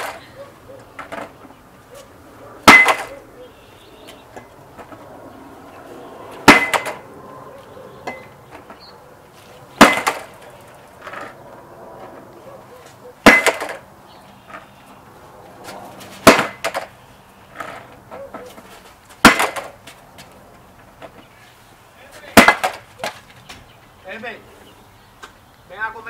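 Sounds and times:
bat cracking on skateboard deck: 0:00.0 - 0:00.2, 0:02.6 - 0:03.2, 0:06.4 - 0:07.0, 0:09.8 - 0:11.4, 0:13.2 - 0:13.8, 0:16.2 - 0:16.9, 0:19.2 - 0:19.9, 0:22.4 - 0:23.2.

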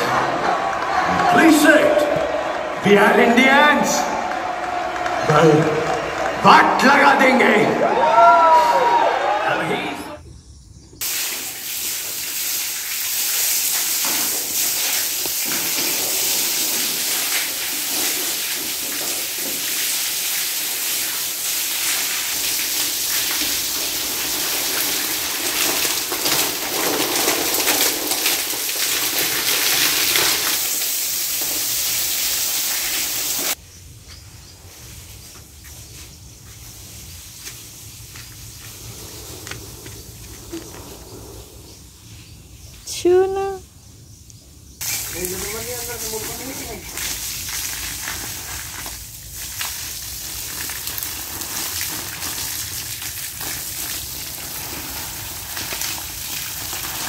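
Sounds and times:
rushing water hiss: 0:11.0 - 0:33.6, 0:34.7 - 0:41.9, 0:44.8 - 0:57.0.

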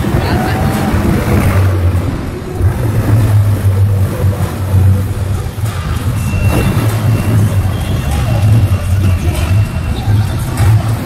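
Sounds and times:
monster truck engine revving: 0:00.0 - 0:11.0.

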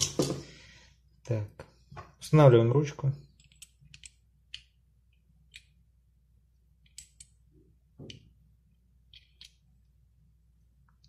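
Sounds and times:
small metal parts clicking: 0:03.4 - 0:04.7, 0:09.1 - 0:09.6.

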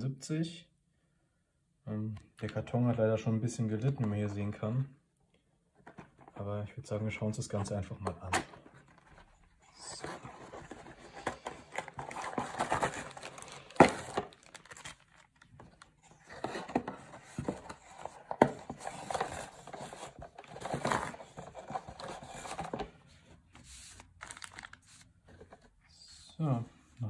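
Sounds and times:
cardboard and plastic rustling: 0:05.8 - 0:06.6, 0:07.4 - 0:25.8.

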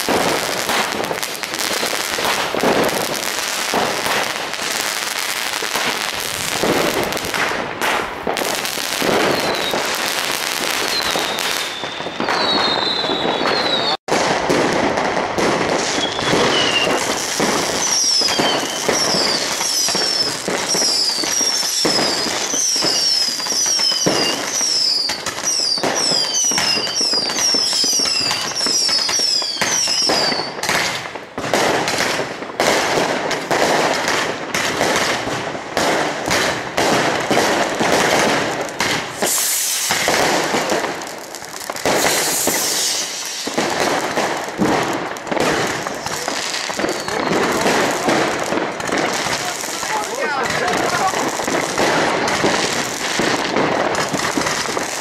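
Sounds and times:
fireworks banging and crackling: 0:00.0 - 0:55.0
short falling whistles: 0:10.8 - 0:14.0, 0:39.2 - 0:40.1, 0:42.0 - 0:43.6.

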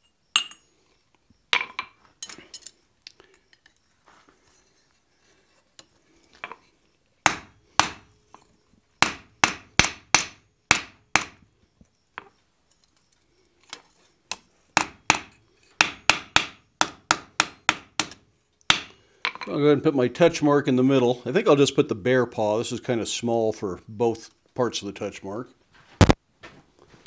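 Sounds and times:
hammer striking iron on anvil: 0:00.4 - 0:00.6, 0:07.3 - 0:08.0, 0:09.0 - 0:11.4, 0:14.8 - 0:19.4.

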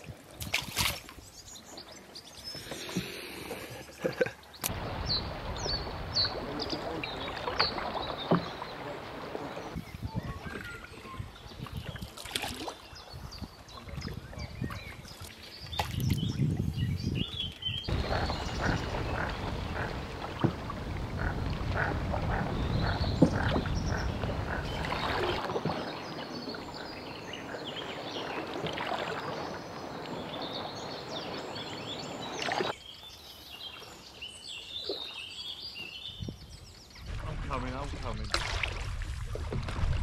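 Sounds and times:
birds chirping: 0:01.2 - 0:12.2, 0:12.8 - 0:38.4
animal calls: 0:17.9 - 0:20.1.

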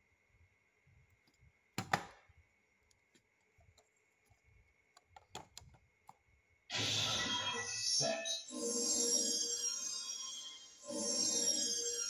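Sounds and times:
plastic bricks clicking: 0:04.9 - 0:06.2.

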